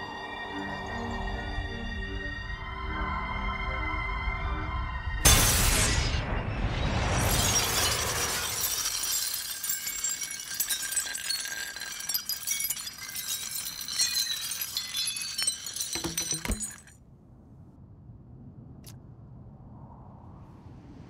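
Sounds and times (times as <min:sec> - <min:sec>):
glass crash: 0:07.2 - 0:17.0
glass shards tinkling on gravel: 0:07.3 - 0:16.9.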